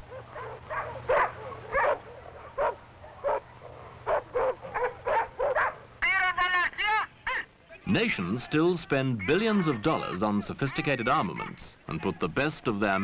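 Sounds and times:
dog barking: 0:00.1 - 0:05.9.

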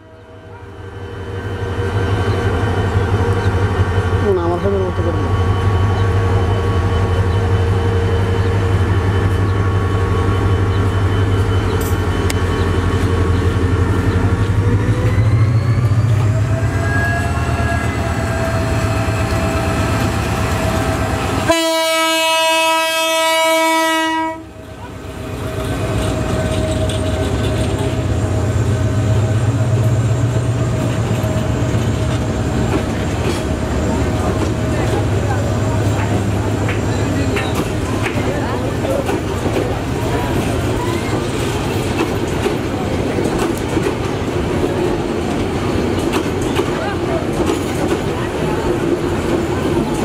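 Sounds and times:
diesel locomotive engine: 0:00.0 - 0:50.0
multi-tone horn blast: 0:21.4 - 0:24.5.

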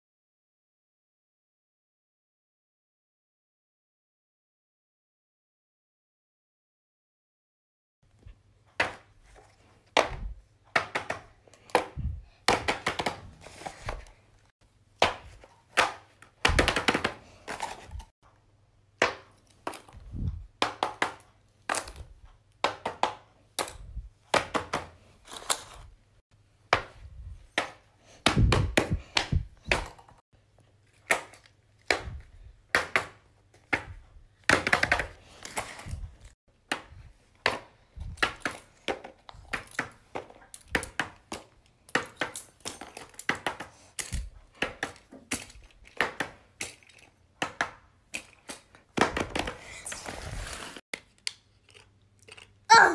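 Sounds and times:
toys tapping and clicking on paper: 0:09.8 - 0:14.2, 0:15.0 - 0:18.1, 0:19.0 - 0:25.7, 0:30.9 - 0:36.0, 0:36.6 - 0:50.0.

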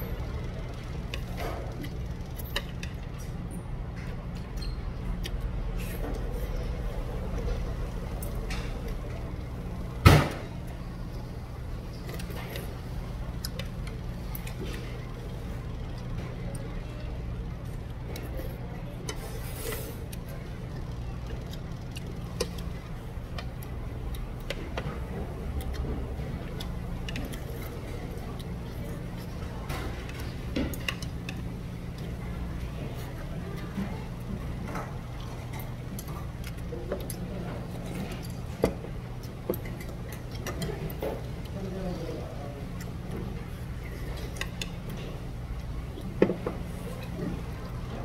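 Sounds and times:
steady low hum: 0:00.0 - 0:48.0
chopsticks clicking on a plate: 0:20.1 - 0:32.2, 0:34.9 - 0:41.6, 0:44.1 - 0:45.3.

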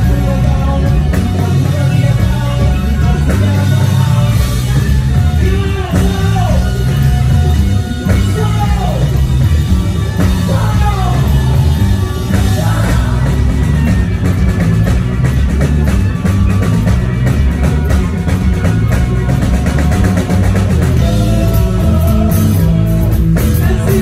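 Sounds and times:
drum kit: 0:00.0 - 0:24.0
electric guitars: 0:00.0 - 0:24.0
person singing into microphone: 0:10.2 - 0:13.6, 0:21.0 - 0:24.0.

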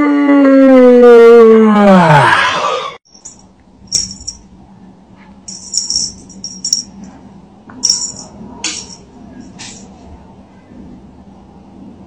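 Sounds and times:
faint steady hum: 0:03.1 - 0:12.0
cat toy jingling: 0:03.2 - 0:04.4, 0:05.5 - 0:07.1, 0:07.8 - 0:09.0.

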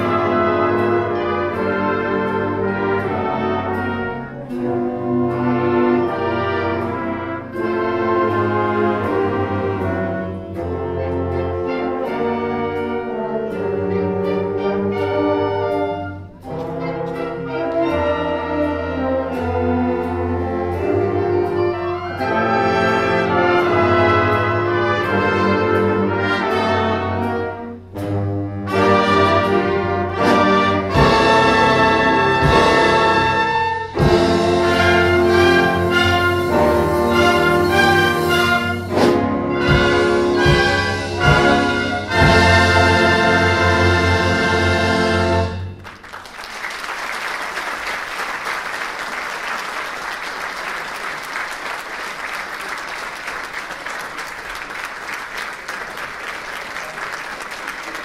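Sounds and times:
concert wind band playing: 0:00.0 - 0:58.0
audience applauding: 0:45.8 - 0:58.0.

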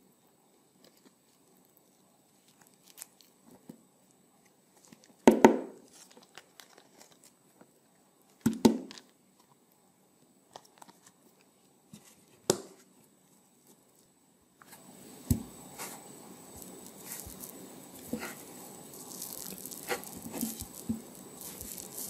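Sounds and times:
faint rustling of strands: 0:15.7 - 0:22.0
grater scraping melon: 0:18.1 - 0:22.0.

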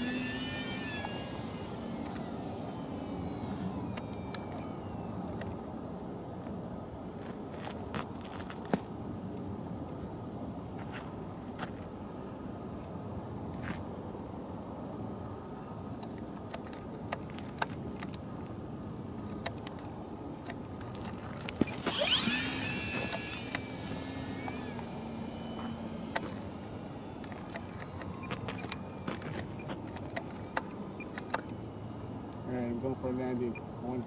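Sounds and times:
small clicks: 0:00.0 - 0:05.6, 0:20.5 - 0:31.6
electric motor and propeller whine: 0:00.0 - 0:06.4, 0:20.1 - 0:34.0.

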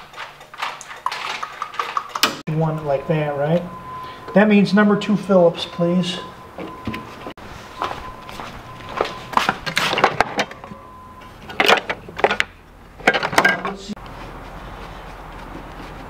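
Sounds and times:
screwdrivers clattering in metal drawer: 0:00.0 - 0:02.4, 0:11.5 - 0:13.9
faint steady high tone: 0:02.5 - 0:07.2.

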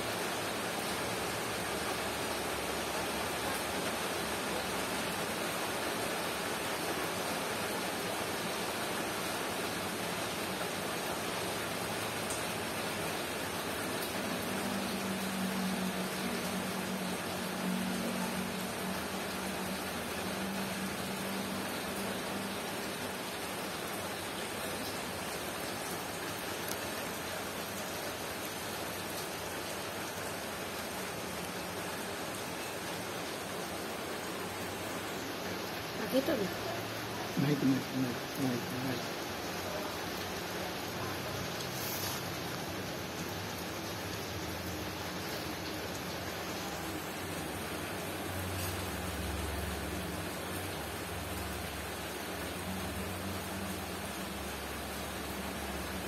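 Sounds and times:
steady hiss: 0:41.6 - 0:42.8.

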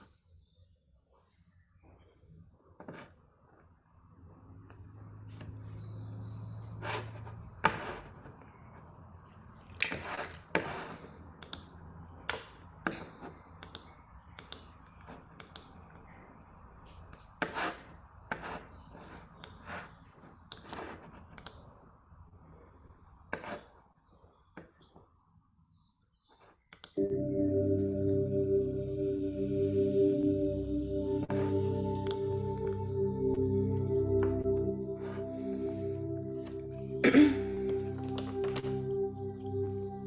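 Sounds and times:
low hum: 0:27.0 - 0:40.0.

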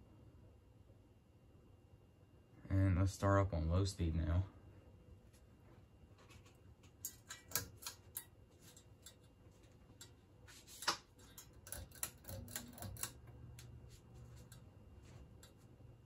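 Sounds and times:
fan motor humming: 0:02.6 - 0:16.0
fan pull-chain switch clicking: 0:07.0 - 0:08.3, 0:11.3 - 0:13.8.

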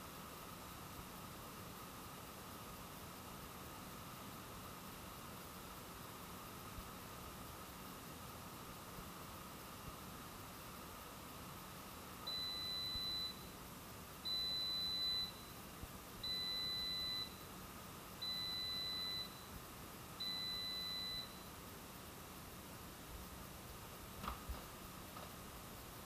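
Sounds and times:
long electronic beeps: 0:12.3 - 0:13.5, 0:14.3 - 0:15.6, 0:16.2 - 0:17.4, 0:18.2 - 0:19.5, 0:20.2 - 0:21.5.

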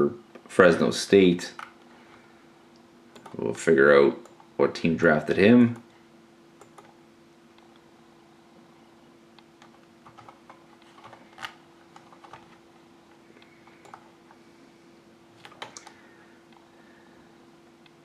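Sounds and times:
steady low hum: 0:00.0 - 0:18.0
computer keys clicking: 0:03.1 - 0:03.4, 0:06.6 - 0:07.0, 0:09.6 - 0:12.6, 0:13.6 - 0:14.1, 0:15.4 - 0:16.0.

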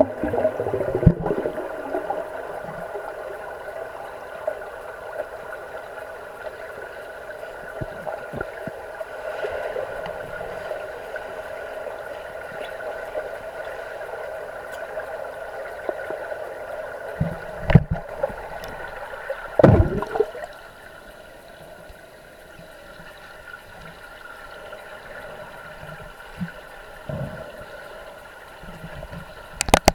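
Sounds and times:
underwater hum: 0:00.0 - 0:29.9
faint clicks: 0:14.6 - 0:15.1, 0:28.5 - 0:29.9
loud dull thuds: 0:19.6 - 0:20.2.

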